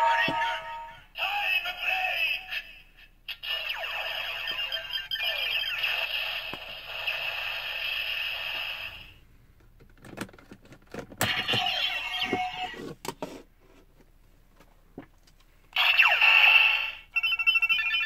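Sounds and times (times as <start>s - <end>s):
toy electronic sound effects: 3.3s - 9.2s, 11.3s - 12.8s, 15.8s - 18.0s.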